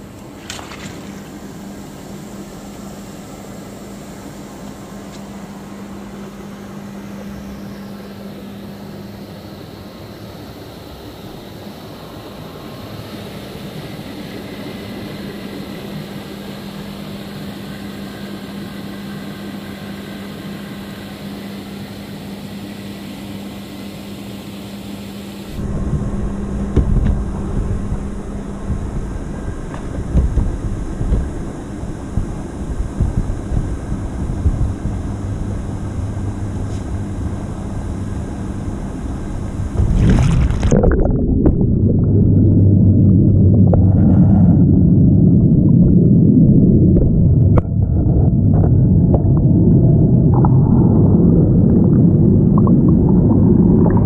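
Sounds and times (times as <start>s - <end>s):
churning foaming water: 0.0s - 54.0s
motor hum: 0.0s - 54.0s
low buffeting rumble: 25.5s - 54.0s.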